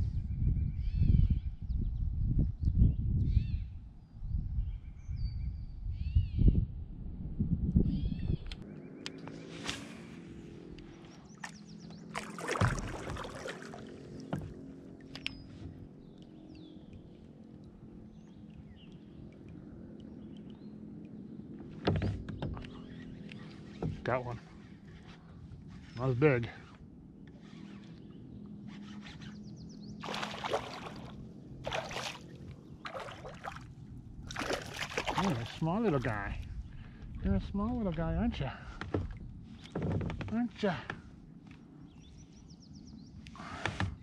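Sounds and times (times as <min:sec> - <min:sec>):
fish splashing at water surface: 0:12.2 - 0:14.6, 0:30.0 - 0:35.6.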